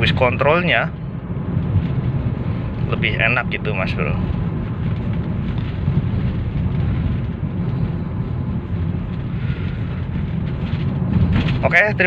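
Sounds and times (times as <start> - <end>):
road and engine rumble: 0.0 - 12.0.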